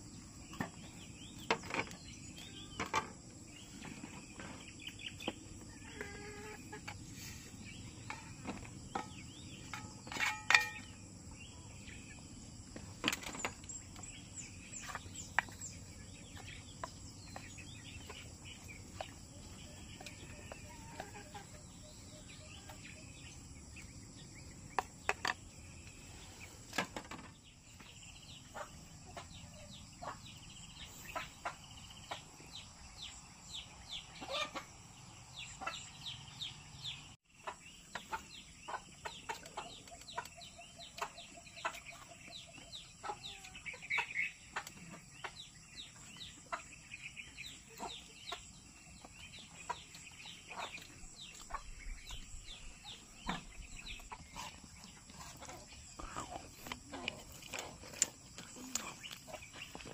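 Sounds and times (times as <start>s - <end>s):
chickens clucking: 2.9s - 11.3s, 12.0s - 59.9s.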